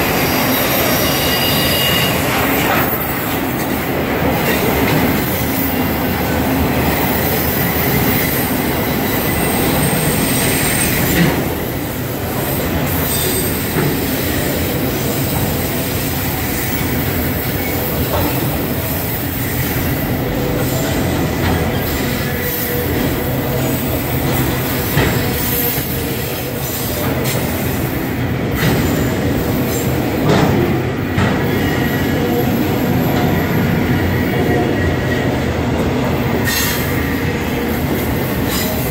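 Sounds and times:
high wheel squeal: 0.0s - 3.8s, 6.9s - 21.0s, 36.4s - 38.9s
train wheels rumbling on rail: 0.0s - 38.9s.

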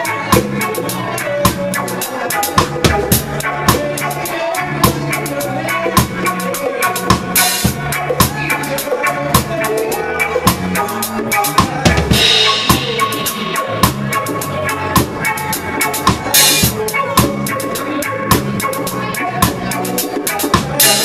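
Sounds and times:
reggae band playing: 0.0s - 21.0s
drum kit hits: 11.5s - 17.4s.

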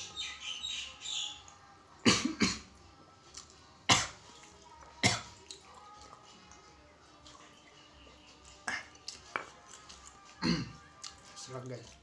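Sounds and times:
man coughing: 10.4s - 10.8s.

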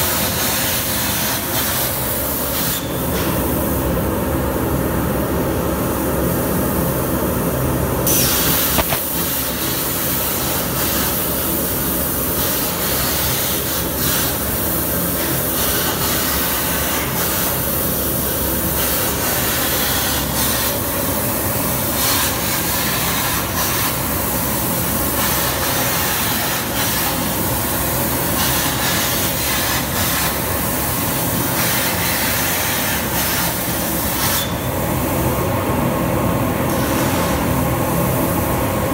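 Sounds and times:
plasma torch hissing: 8.0s - 34.6s, 36.7s - 37.5s.

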